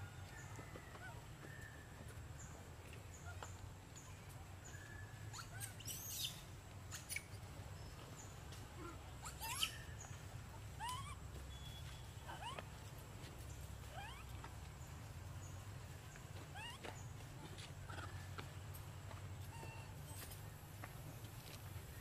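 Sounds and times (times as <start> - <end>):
high animal chirps and squeaks: 5.3 - 7.5, 8.8 - 12.8, 13.9 - 14.5, 16.5 - 18.3.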